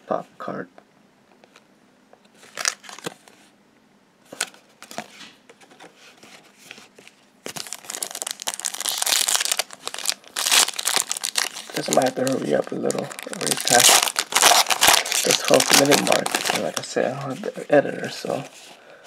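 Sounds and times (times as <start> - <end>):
foil pack crinkling torn open: 2.5 - 3.1, 7.5 - 16.9.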